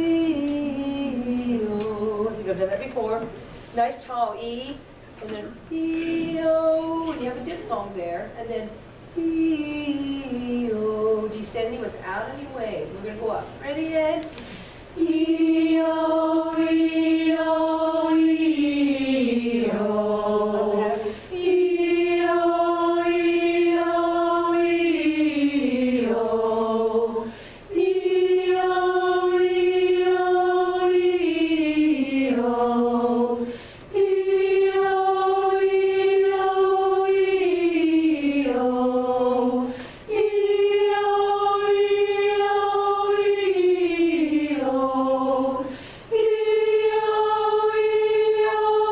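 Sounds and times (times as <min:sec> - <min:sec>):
choir singing vocal warm-up: 0:00.0 - 0:03.7, 0:05.2 - 0:07.9, 0:08.7 - 0:12.4, 0:14.0 - 0:48.9
quick breath: 0:14.3 - 0:14.9, 0:27.3 - 0:27.7, 0:33.5 - 0:33.9, 0:39.7 - 0:40.1, 0:45.7 - 0:46.1.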